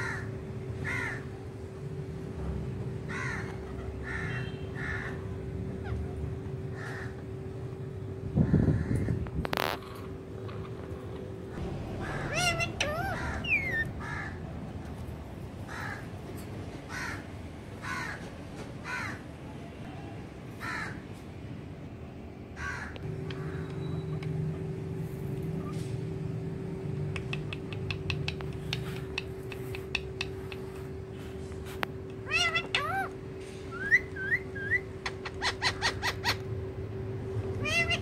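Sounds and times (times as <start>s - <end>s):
steady hum: 0.0s - 18.5s, 19.2s - 38.0s
parakeet squawking: 3.1s - 5.2s, 11.5s - 14.4s, 32.2s - 36.5s, 37.6s - 38.0s.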